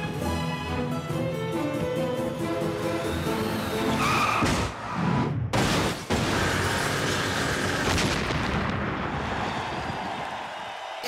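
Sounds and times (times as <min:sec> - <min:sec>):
orchestral music: 0:00.0 - 0:04.3
smashing noise: 0:05.5 - 0:08.6.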